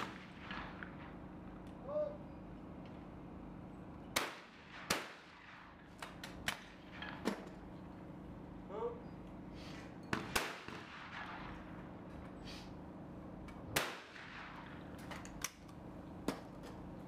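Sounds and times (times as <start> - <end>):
shotgun shots: 0.0 - 1.2, 4.2 - 7.5, 10.1 - 11.8, 13.7 - 14.9
steady low hum: 0.0 - 17.0.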